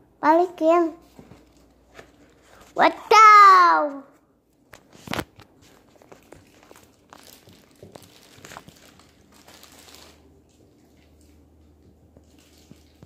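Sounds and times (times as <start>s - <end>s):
cardboard box rustling and crinkling: 5.0s - 10.2s.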